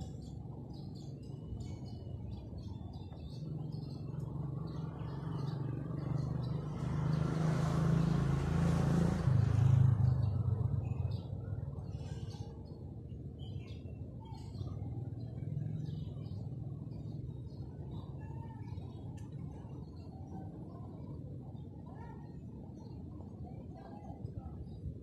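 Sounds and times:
birds chirping: 0.0 - 8.6
vehicle engine passing by: 3.4 - 12.4.

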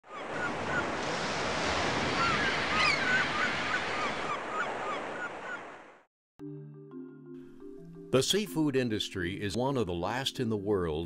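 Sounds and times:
surf breaking on rocky shore: 0.3 - 5.8.

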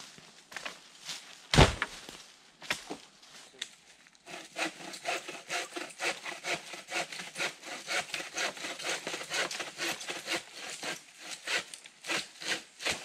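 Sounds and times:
hand saw cutting a log: 4.3 - 13.0.

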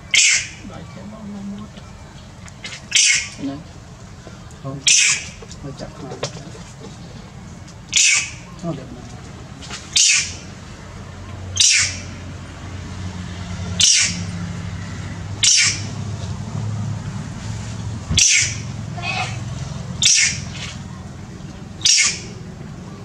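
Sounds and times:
steady low hum: 0.0 - 23.0
monkey shrill screams: 0.1 - 0.6, 2.9 - 3.4, 4.8 - 5.4, 7.9 - 8.4, 9.9 - 10.4, 11.6 - 12.1, 13.8 - 14.2, 15.4 - 15.9, 18.2 - 19.4, 20.0 - 20.4, 21.8 - 22.3.

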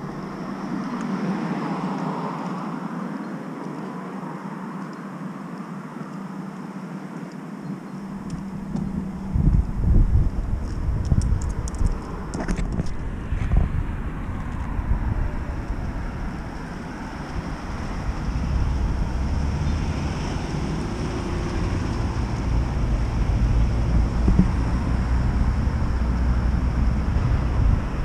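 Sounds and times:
engine rumble with road noise: 0.0 - 28.0.

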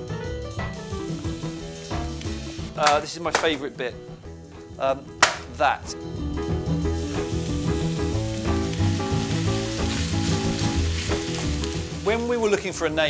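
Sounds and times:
background music with bass: 0.0 - 13.0
meat sizzling in a pan: 0.7 - 3.1, 6.5 - 13.0.

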